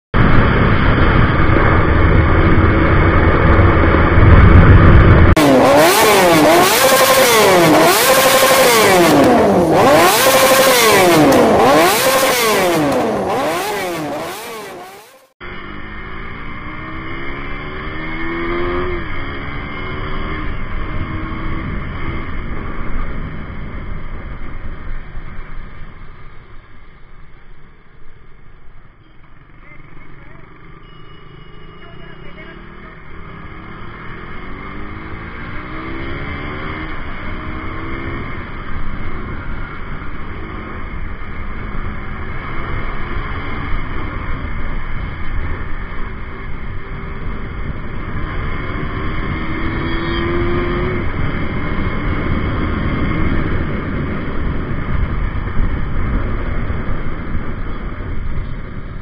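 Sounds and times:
motorcycle engine: 0:00.1 - 0:59.0
wind noise: 0:00.2 - 0:07.9, 0:44.0 - 0:59.0.

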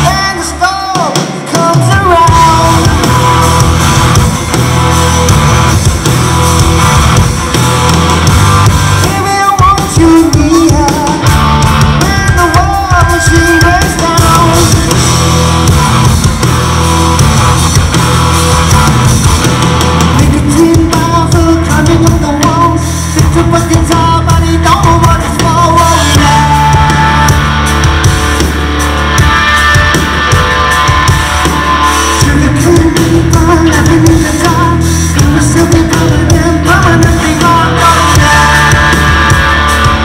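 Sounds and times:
male lead vocal: 0:00.0 - 0:04.3, 0:08.6 - 0:16.1, 0:20.0 - 0:28.0, 0:31.6 - 0:40.0
bass guitar: 0:00.0 - 0:40.0
drum kit: 0:00.0 - 0:40.0
electric guitars: 0:00.0 - 0:40.0.

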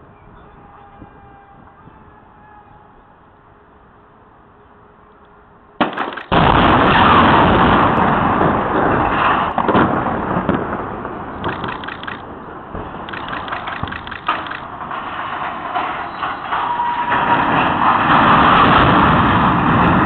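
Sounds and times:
crane toppling noise: 0:00.0 - 0:20.0
demolition blasts: 0:05.8 - 0:20.0
loud rumbling: 0:05.9 - 0:20.0.

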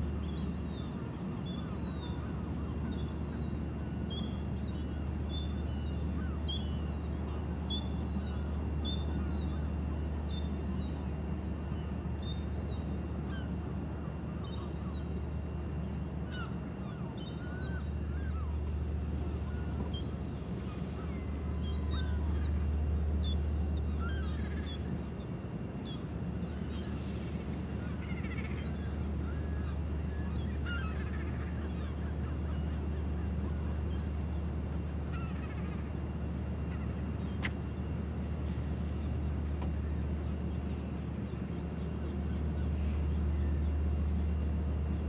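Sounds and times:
birds chirping: 0:16.2 - 0:25.2, 0:25.8 - 0:45.0.

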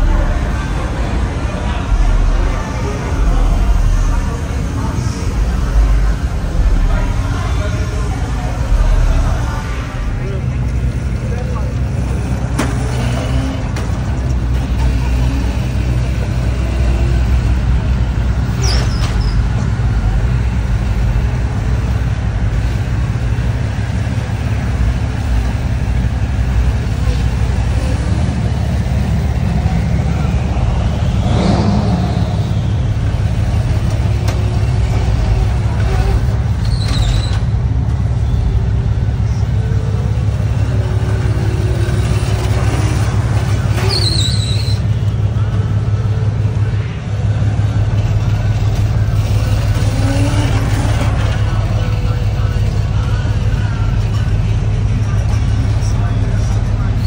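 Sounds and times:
car engines rumbling: 0:00.0 - 0:57.0
high squeal: 0:18.5 - 0:19.6, 0:29.7 - 0:34.8, 0:35.8 - 0:37.6, 0:43.4 - 0:45.1.

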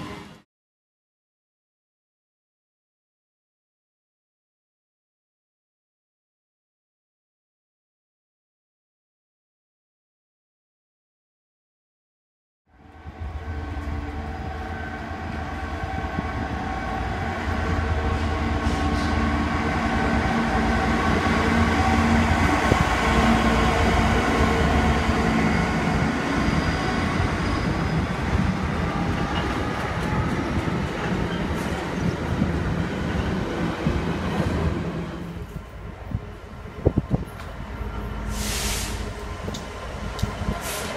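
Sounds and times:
diesel locomotive engine drone: 0:12.7 - 0:40.9.

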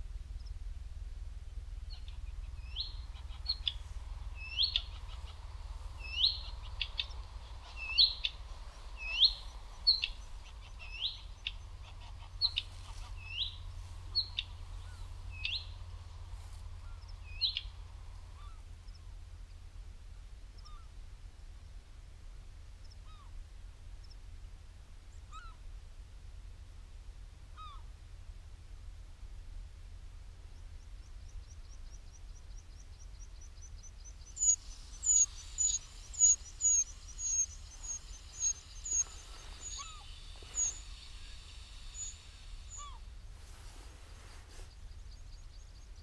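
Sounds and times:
steady low rumble: 0:00.0 - 0:46.0
small bird calling: 0:01.5 - 0:19.1, 0:20.6 - 0:20.9, 0:25.2 - 0:25.6, 0:27.6 - 0:27.9, 0:30.8 - 0:46.0
faint ticks: 0:01.8 - 0:19.6, 0:30.5 - 0:46.0.

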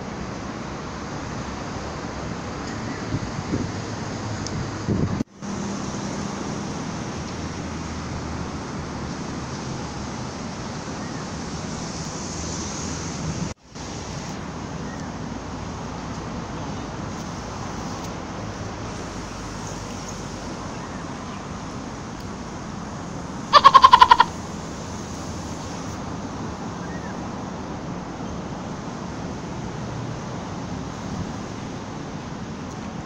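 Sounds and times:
distant road traffic hum: 0:00.0 - 0:33.0
wind on microphone: 0:03.0 - 0:05.3
short quavering pitched call: 0:23.5 - 0:24.4.

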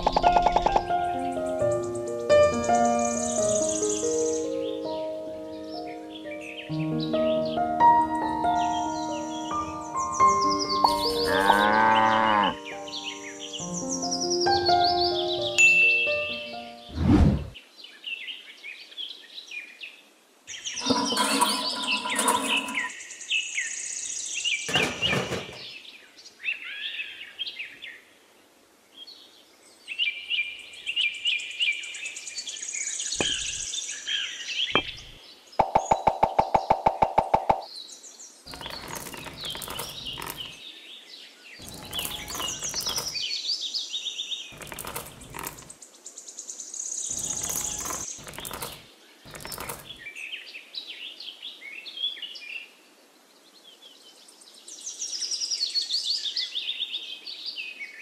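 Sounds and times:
small birds chirping: 0:00.0 - 0:07.7, 0:08.3 - 0:16.6, 0:28.9 - 0:52.5
pebbles clattering: 0:10.8 - 0:11.7, 0:20.8 - 0:22.9, 0:38.5 - 0:40.6, 0:41.6 - 0:43.2, 0:44.6 - 0:45.8, 0:47.1 - 0:50.1
rapid run of ticks: 0:47.1 - 0:50.0.

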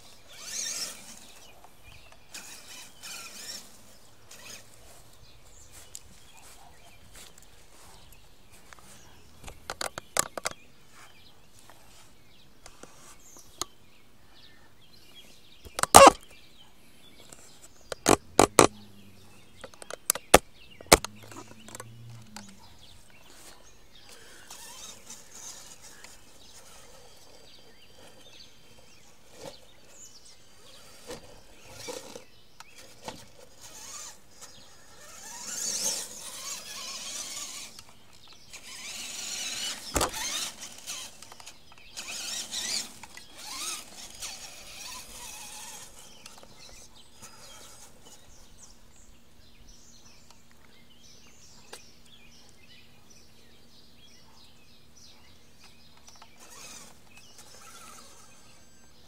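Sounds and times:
rc truck knocks and clatter: 0:09.4 - 0:10.6, 0:15.7 - 0:16.4, 0:17.2 - 0:18.9, 0:19.5 - 0:30.1, 0:30.7 - 0:48.3, 0:55.6 - 0:58.5.

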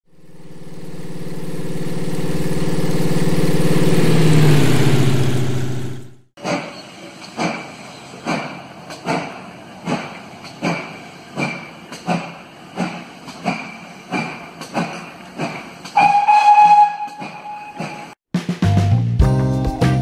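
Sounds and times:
steam locomotive exhaust chuffing: 0:00.1 - 0:18.2
steam whistle: 0:16.0 - 0:18.2.

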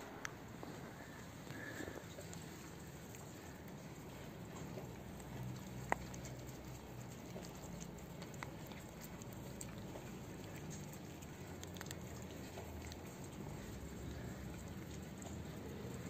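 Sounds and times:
cat chewing and licking: 0:00.0 - 0:16.0.

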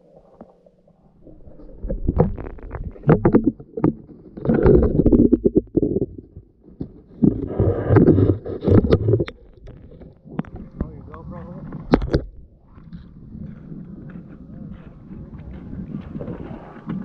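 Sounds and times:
underwater sloshing and rumbling: 0:00.0 - 0:17.0.

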